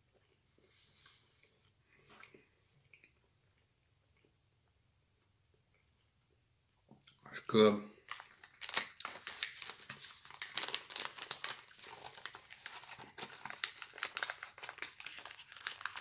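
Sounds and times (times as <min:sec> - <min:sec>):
snack packaging crinkling: 0:08.0 - 0:16.0.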